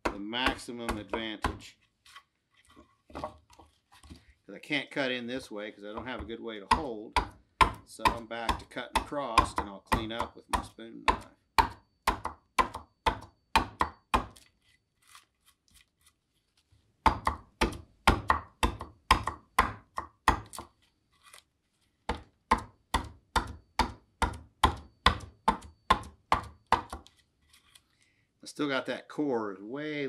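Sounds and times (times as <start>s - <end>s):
adze chopping into wood: 6.7s - 14.4s, 17.1s - 20.7s, 22.1s - 27.1s.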